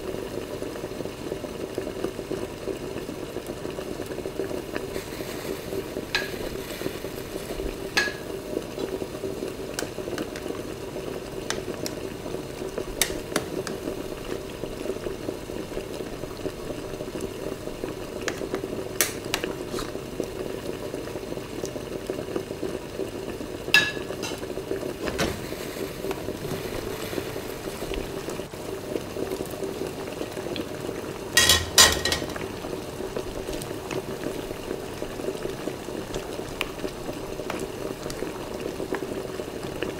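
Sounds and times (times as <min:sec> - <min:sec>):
stew bubbling in a pan: 0:00.0 - 0:39.9
spatula clicking on pan: 0:13.0 - 0:13.8.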